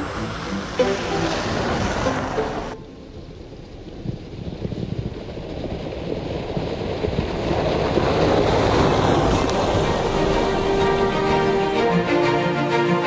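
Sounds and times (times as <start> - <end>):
car engine approaching: 0.0 - 13.0
tyres on snow: 0.0 - 13.0.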